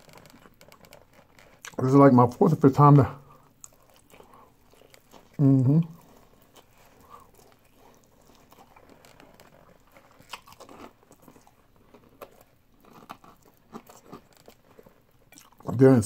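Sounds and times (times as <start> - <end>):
chicken being bitten and chewed: 3.3 - 15.8.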